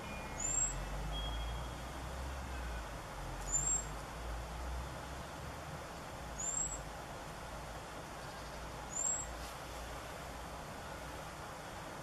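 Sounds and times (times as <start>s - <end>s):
bird whistling: 0.0s - 1.8s, 3.5s - 3.9s.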